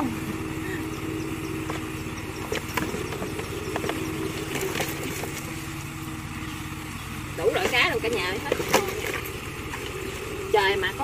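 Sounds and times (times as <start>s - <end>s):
small engine idling: 0.0s - 11.0s.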